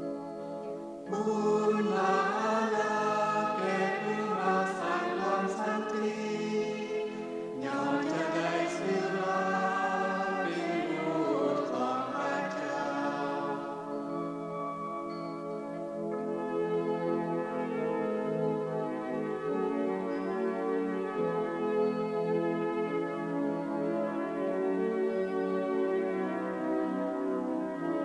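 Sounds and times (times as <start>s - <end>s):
choir singing: 1.1s - 14.3s.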